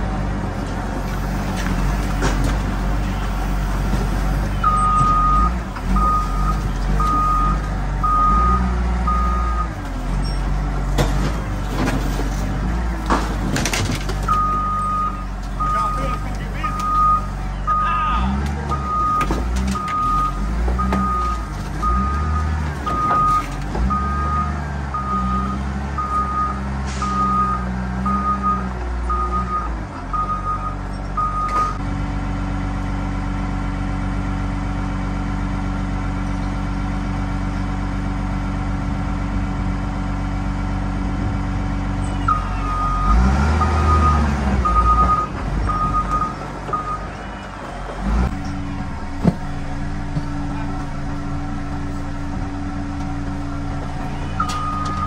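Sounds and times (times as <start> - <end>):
heavy machine engine running: 0.0 - 55.0
backup alarm beeping: 4.6 - 9.8, 14.3 - 18.0, 42.2 - 47.1, 54.4 - 55.0.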